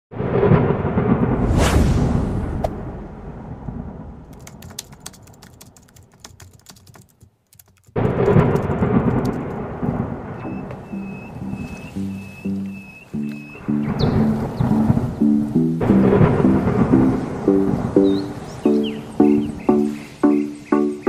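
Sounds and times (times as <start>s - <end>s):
deep thunder-like rumble: 0.1s - 4.7s, 8.0s - 11.9s, 15.8s - 18.4s
rising whoosh: 0.6s - 4.2s
crackling clicks: 4.3s - 9.6s
music notes: 10.4s - 21.0s.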